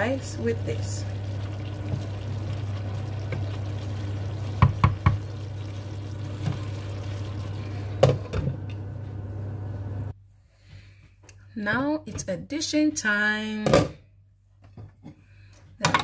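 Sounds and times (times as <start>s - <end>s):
wooden spoon stirring stew: 1.2s - 7.4s.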